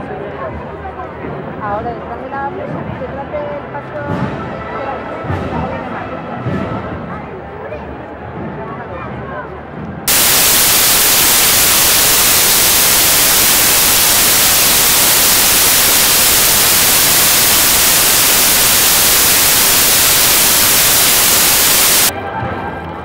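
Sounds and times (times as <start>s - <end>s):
static hiss: 10.1s - 22.1s.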